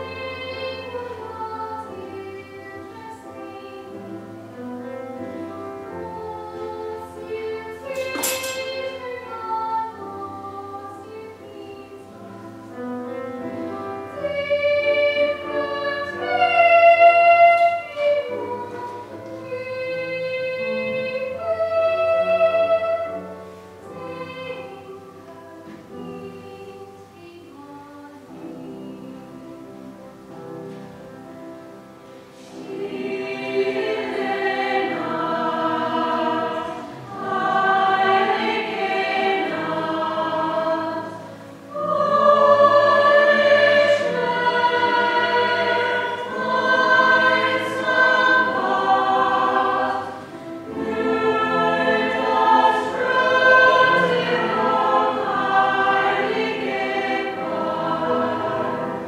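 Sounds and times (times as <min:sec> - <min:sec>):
mixed choir singing: 0:00.0 - 0:31.0, 0:31.6 - 0:59.0.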